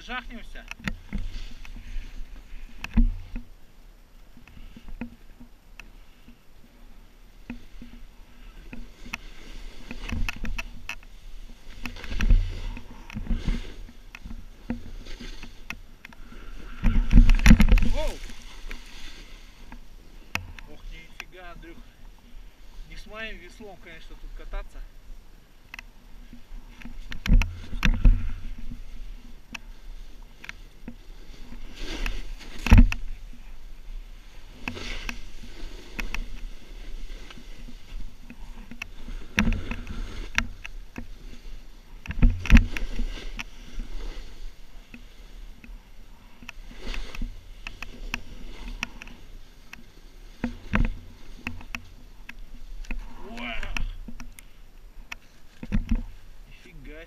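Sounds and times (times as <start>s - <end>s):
snowboard swishing through snow: 28.3s - 38.2s.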